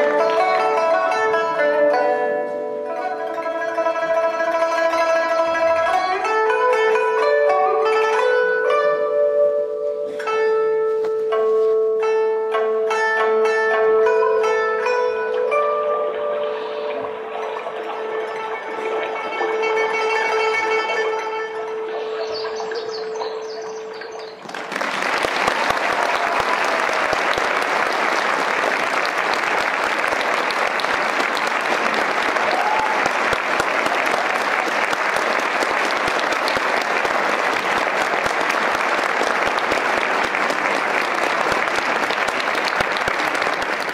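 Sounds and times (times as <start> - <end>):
audience applauding: 0.0 - 2.1, 16.0 - 43.9
faint cheers: 24.5 - 39.7.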